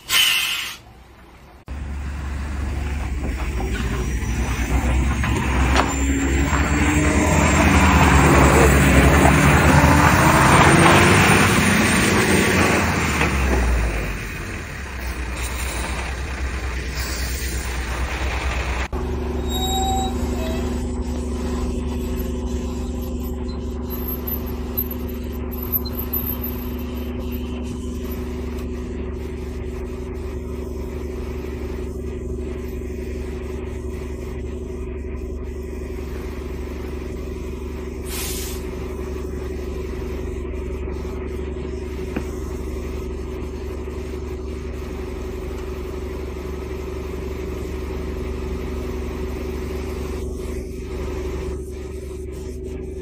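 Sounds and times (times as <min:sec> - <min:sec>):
short high hiss: 0:00.0 - 0:00.9, 0:38.0 - 0:38.7
truck compressor drone: 0:00.0 - 0:53.0.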